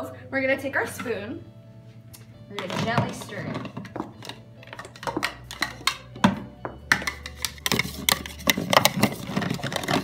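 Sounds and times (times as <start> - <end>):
background music: 0.0 - 10.0
plastic spatula clattering in toy pan: 2.6 - 6.0, 6.9 - 10.0.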